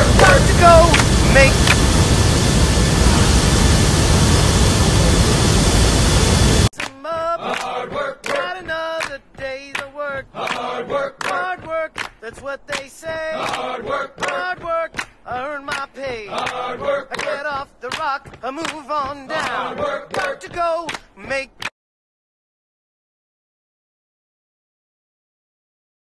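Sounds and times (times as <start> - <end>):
voices singing in choppy phrases: 0.0 - 4.0, 6.8 - 21.7.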